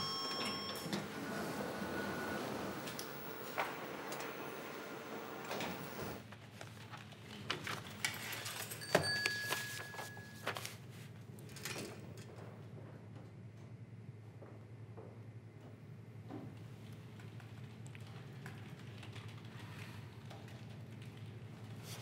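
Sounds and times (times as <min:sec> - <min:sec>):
lift doors sliding shut: 0:00.0 - 0:06.2.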